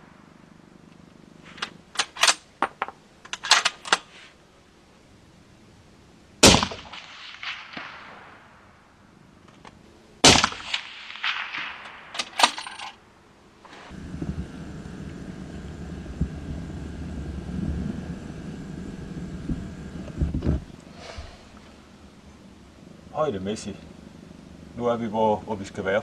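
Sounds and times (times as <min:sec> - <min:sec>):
steady low noise: 0:00.0 - 0:02.0, 0:13.0 - 0:26.0
suppressed rifle shots: 0:06.4 - 0:08.8, 0:10.2 - 0:12.8.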